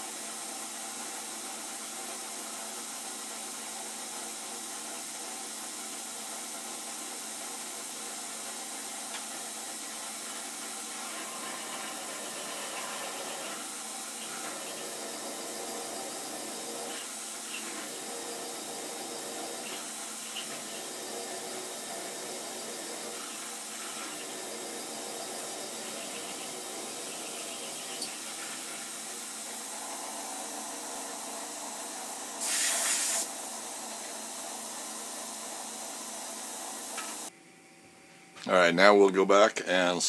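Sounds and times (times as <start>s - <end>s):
coolant spray hissing: 1.3s - 37.3s
milling machine cutting steel: 9.9s - 32.9s.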